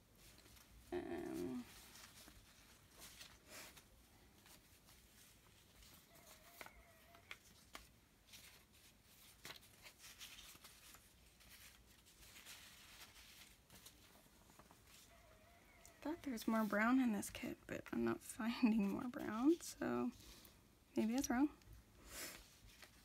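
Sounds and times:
paper rustling: 0:00.1 - 0:15.4, 0:22.3 - 0:23.0.

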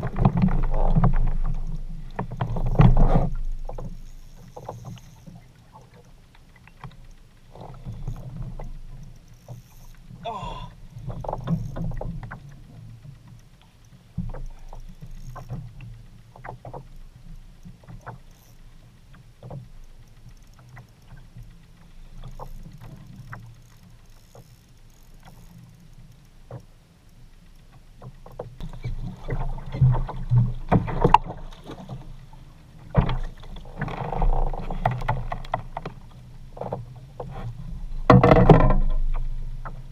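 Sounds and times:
wind and water rumble: 0:00.0 - 0:39.9
fishing reel clicks: 0:03.7 - 0:10.2, 0:10.9 - 0:16.2, 0:17.4 - 0:29.3.

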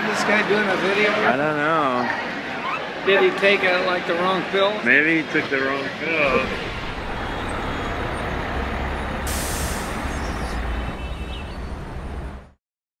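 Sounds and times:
high hiss: 0:09.3 - 0:10.2.

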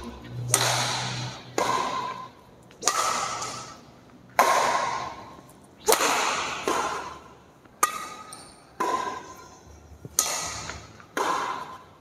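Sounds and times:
badminton racket strikes: 0:00.0 - 0:11.9.

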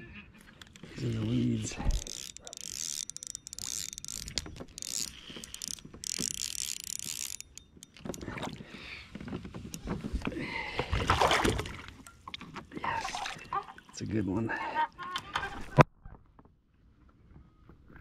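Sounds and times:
fishing reel whirring: 0:00.5 - 0:08.7.

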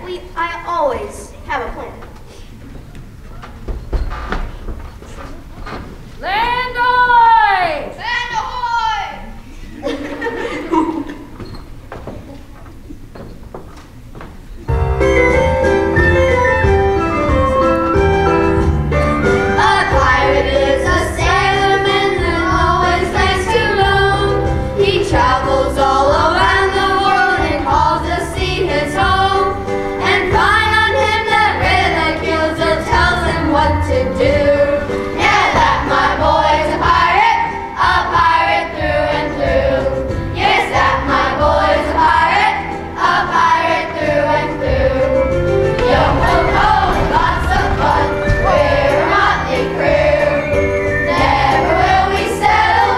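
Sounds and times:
instrumental accompaniment with bass: 0:14.7 - 0:52.9
children singing in unison: 0:19.4 - 0:52.9.

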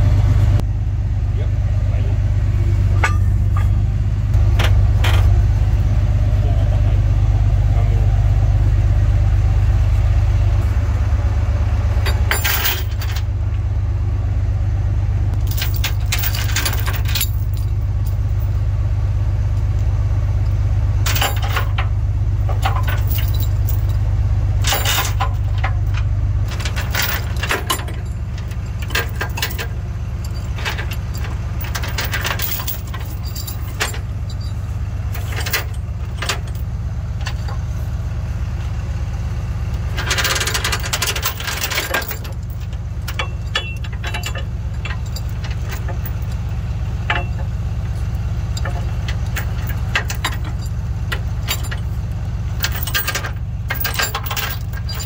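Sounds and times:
truck engine idling: 0:00.0 - 0:55.0
chains rattling against steel: 0:12.0 - 0:13.3, 0:15.4 - 0:18.6, 0:21.0 - 0:24.0, 0:24.6 - 0:37.6, 0:39.9 - 0:52.0, 0:52.6 - 0:55.0.

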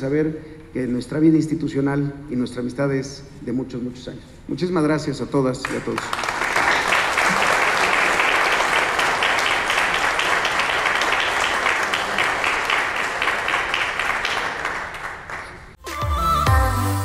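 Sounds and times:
people applauding: 0:05.6 - 0:15.8.

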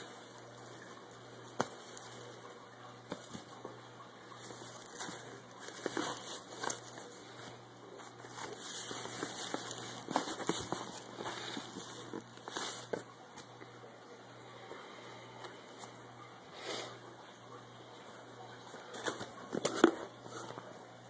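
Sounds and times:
plastic wrap crinkling: 0:04.3 - 0:13.5.

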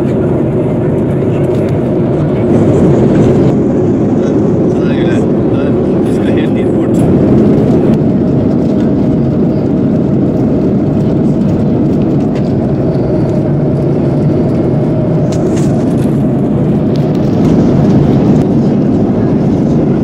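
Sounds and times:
airplane cabin engine drone: 0:00.0 - 0:20.0.

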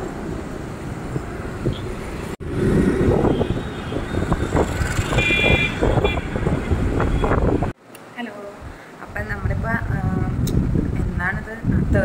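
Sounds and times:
wind rushing over microphone: 0:00.0 - 0:07.8, 0:08.5 - 0:12.0
road and engine noise: 0:00.0 - 0:12.0
vehicle horn beep: 0:03.2 - 0:07.7.

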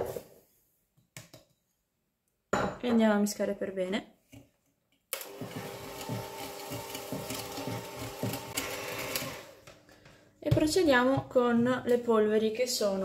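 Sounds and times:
electric blender whisking batter: 0:05.2 - 0:09.7.

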